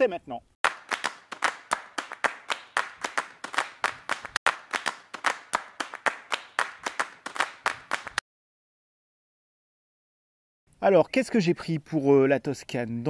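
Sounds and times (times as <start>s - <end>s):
rhythmic hand clapping: 0.6s - 8.2s.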